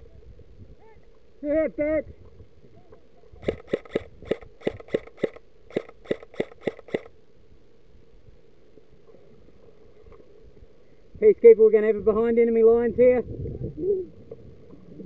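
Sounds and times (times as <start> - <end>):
airsoft gun shots popping: 3.4 - 7.1.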